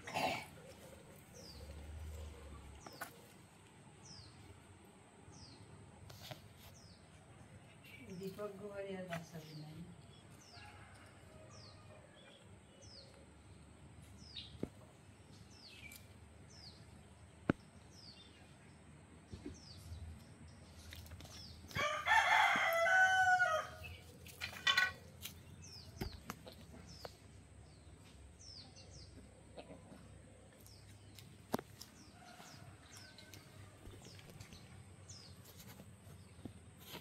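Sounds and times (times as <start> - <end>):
small birds chirping: 5.3 - 37.0
rooster crowing: 21.7 - 23.8.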